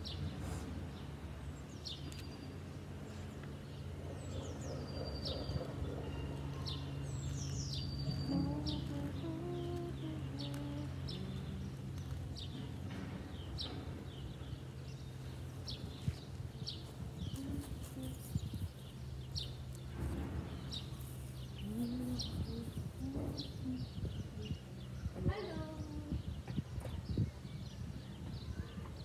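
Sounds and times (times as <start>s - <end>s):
steady low hum: 0.0s - 28.2s
small songbird chirping: 1.0s - 29.0s.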